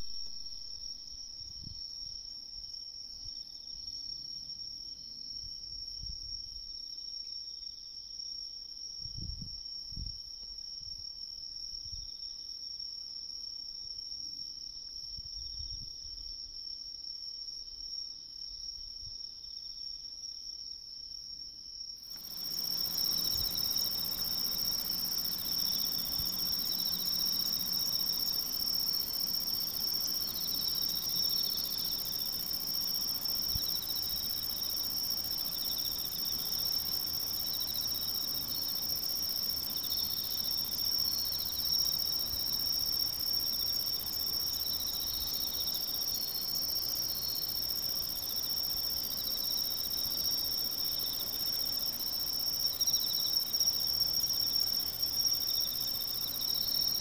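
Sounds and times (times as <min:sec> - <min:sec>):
insect high-pitched trill: 0:22.1 - 0:57.0.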